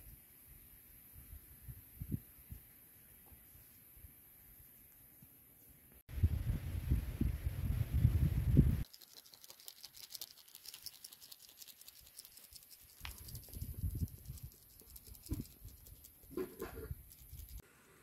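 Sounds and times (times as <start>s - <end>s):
spice sprinkling on chicken: 8.8s - 17.6s.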